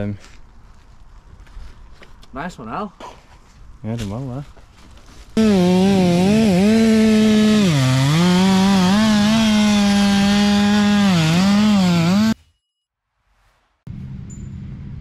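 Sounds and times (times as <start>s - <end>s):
chainsaw running at full throttle: 5.4s - 12.4s.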